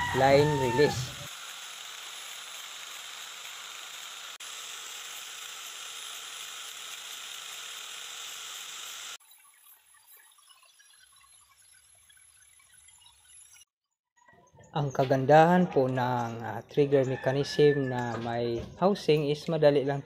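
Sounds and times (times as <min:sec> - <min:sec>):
angle grinder sanding wood: 0:00.0 - 0:09.2.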